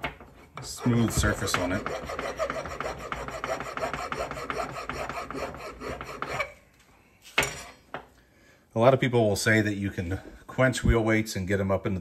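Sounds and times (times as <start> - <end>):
hand file scraping lead: 0.6 - 6.6.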